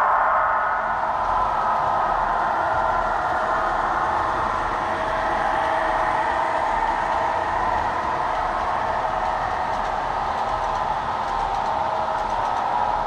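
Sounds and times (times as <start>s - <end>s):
model locomotives running: 1.3s - 13.0s.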